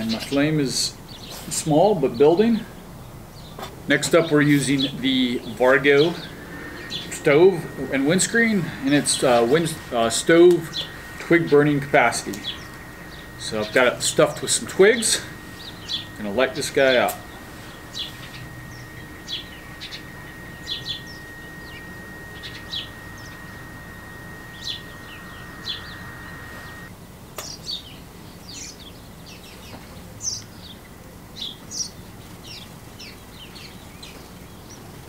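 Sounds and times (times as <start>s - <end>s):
faint steady high tone: 4.0s - 26.9s
small birds chirping: 4.3s - 30.8s.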